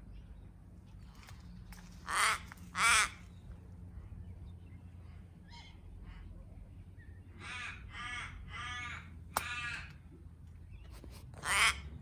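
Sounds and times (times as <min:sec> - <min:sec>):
crow cawing: 0:02.0 - 0:03.2, 0:07.4 - 0:09.9, 0:11.4 - 0:11.8.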